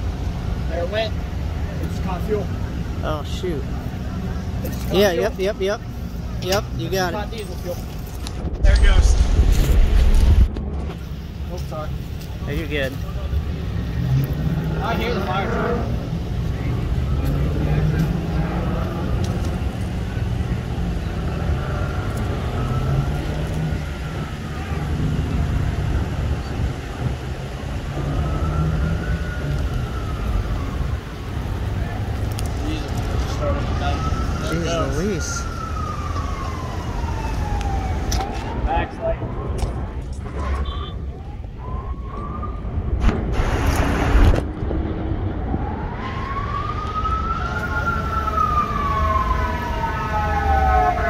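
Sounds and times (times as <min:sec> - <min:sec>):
road traffic rumble: 0:00.0 - 0:51.0
loud rushing noise: 0:08.3 - 0:11.5, 0:42.7 - 0:46.5
fire engine siren wailing: 0:13.0 - 0:51.0.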